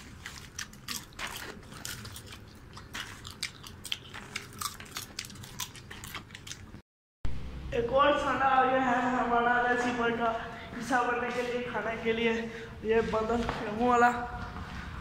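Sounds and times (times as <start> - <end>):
person chewing popcorn: 0.0 - 6.8.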